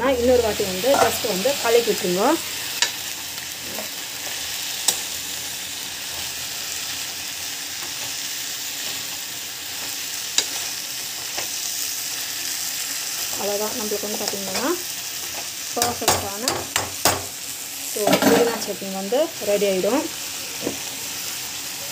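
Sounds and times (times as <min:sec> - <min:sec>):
food sizzling in hot oil: 0:00.0 - 0:21.9
utensil tapping a pan: 0:15.8 - 0:17.3.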